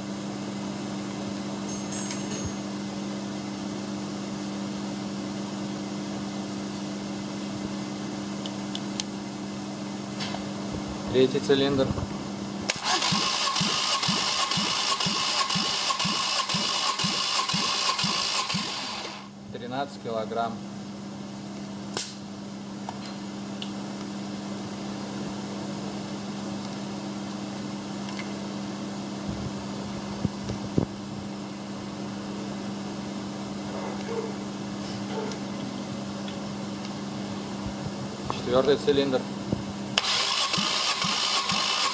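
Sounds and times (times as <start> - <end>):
low machine hum: 0.0 - 13.2
engine cranking on starter: 12.7 - 19.3, 40.0 - 41.9.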